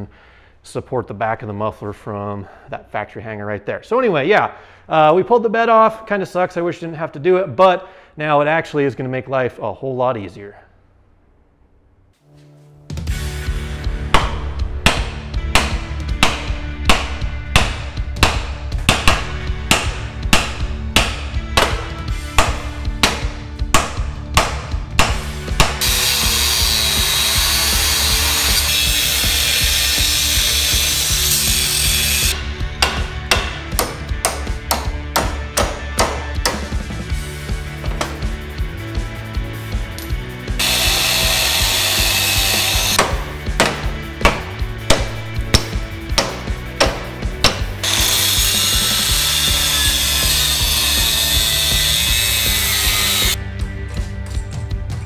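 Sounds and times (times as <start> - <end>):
angle grinder cutting steel: 25.8 - 32.4, 40.6 - 43.1, 47.8 - 53.4.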